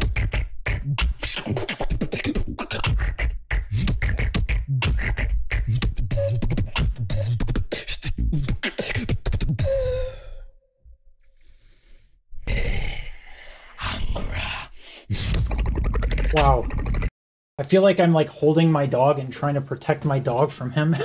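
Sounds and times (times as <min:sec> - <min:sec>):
person beatboxing: 0:00.0 - 0:10.2, 0:13.8 - 0:17.1.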